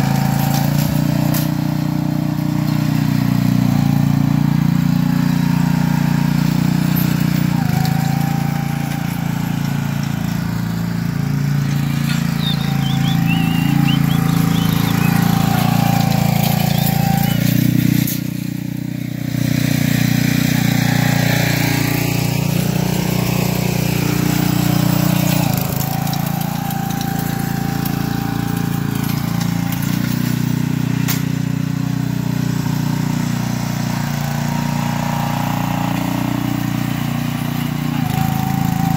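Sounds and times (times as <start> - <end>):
small gas engine running: 0.0 - 38.9.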